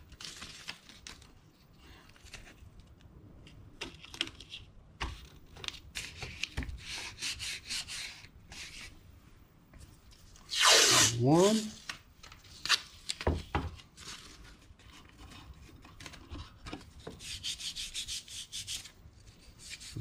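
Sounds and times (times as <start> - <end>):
tape rubbing and rustling: 10.1 - 13.2, 13.8 - 20.0.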